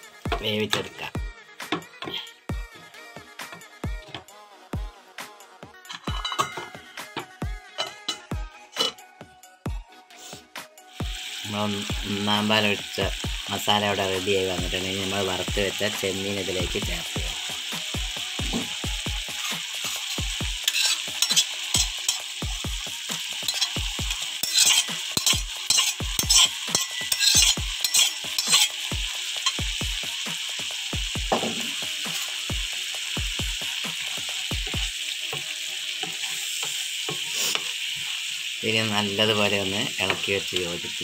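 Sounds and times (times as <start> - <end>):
curry sizzling and bubbling in pan: 10.9 - 41.0
wooden spatula scraping and clinking: 20.6 - 22.2, 24.4 - 28.8.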